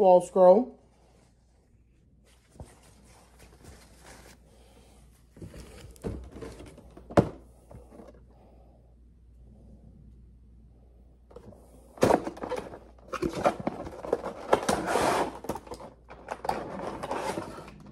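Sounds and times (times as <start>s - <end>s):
cloth and cardboard rustling: 0.8s - 8.3s.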